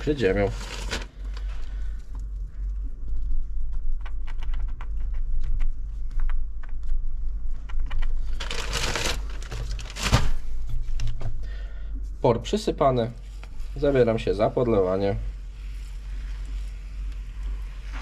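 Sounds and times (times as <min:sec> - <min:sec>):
rustling brushes: 0:00.0 - 0:04.0, 0:12.8 - 0:18.0.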